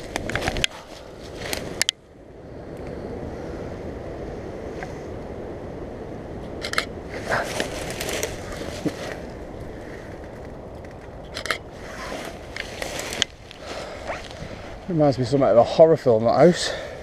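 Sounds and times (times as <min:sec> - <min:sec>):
twigs crackling underfoot: 0:00.0 - 0:02.0, 0:06.5 - 0:15.6
steady low rush: 0:00.0 - 0:17.0.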